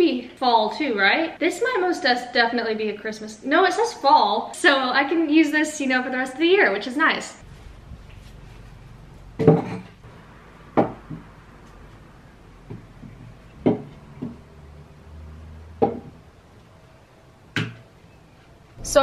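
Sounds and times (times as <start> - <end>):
decorations knocking on wooden bench: 9.4 - 9.9, 10.7 - 11.3, 12.6 - 14.4, 15.8 - 16.2.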